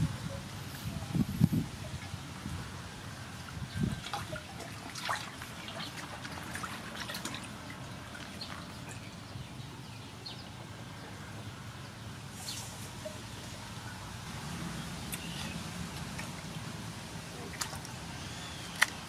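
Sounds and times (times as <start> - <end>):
water splashing in a metal basin: 3.5 - 9.3, 15.1 - 19.0.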